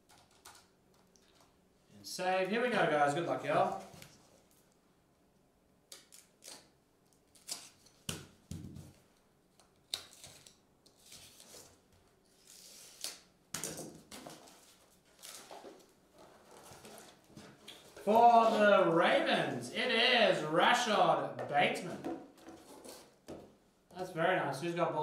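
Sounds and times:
plastic wrap rustling: 14.3s - 19.2s.

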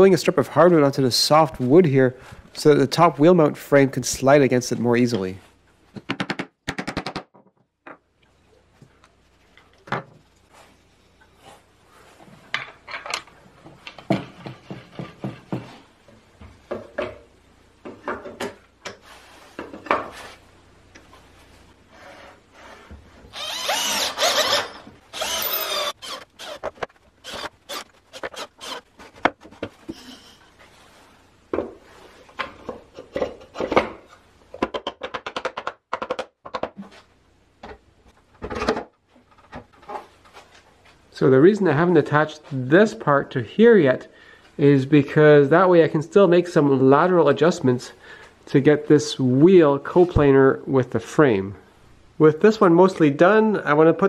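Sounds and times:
wood and tools knocking: 12.5s - 15.8s
power tool running: 23.4s - 26.6s.

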